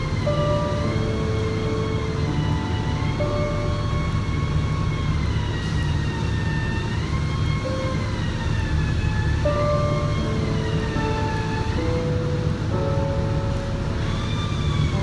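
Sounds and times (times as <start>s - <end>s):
faint rising and falling tone: 0.0s - 15.0s.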